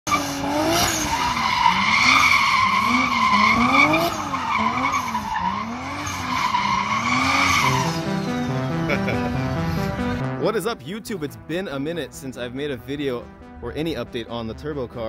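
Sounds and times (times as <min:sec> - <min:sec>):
tires squealing: 0:00.1 - 0:10.1
car engine revving: 0:00.1 - 0:10.4.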